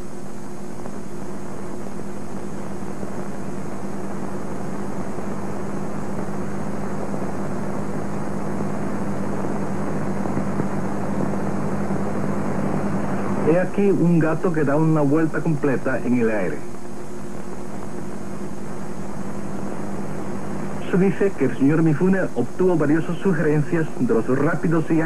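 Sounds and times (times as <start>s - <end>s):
film soundtrack hiss: 0.0s - 25.0s
low hum: 0.0s - 25.0s.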